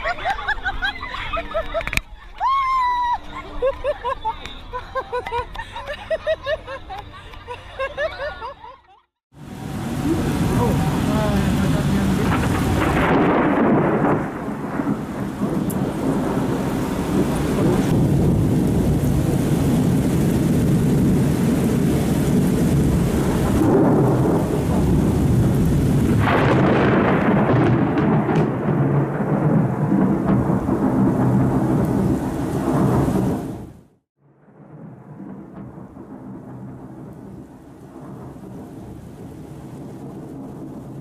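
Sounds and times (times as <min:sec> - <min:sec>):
rain: 0:09.3 - 0:41.0
rumbling thunder: 0:09.4 - 0:41.0.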